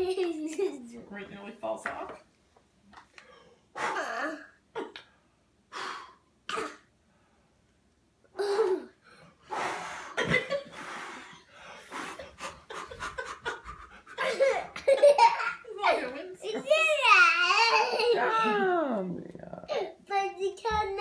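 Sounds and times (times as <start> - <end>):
toddler laughing: 0.0 - 0.9, 13.0 - 18.2.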